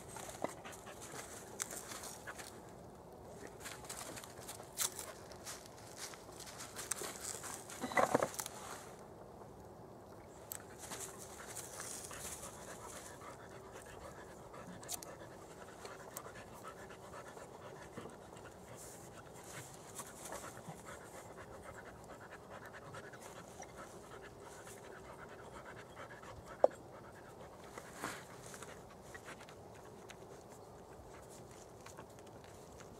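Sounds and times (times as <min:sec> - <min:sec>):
dog panting: 0:10.7 - 0:32.9.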